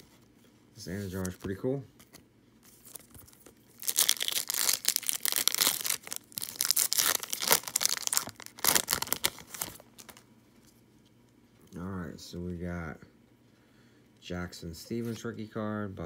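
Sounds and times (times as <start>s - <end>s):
wrapper tearing and crinkling: 2.8s - 10.2s.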